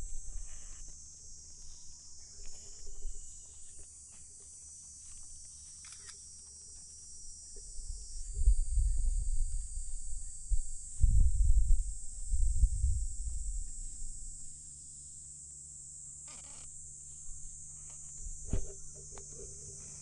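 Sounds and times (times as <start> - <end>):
high-pitched insect chorus: 0.0 - 20.0
low microphone rumbling: 7.7 - 14.5, 18.1 - 20.0.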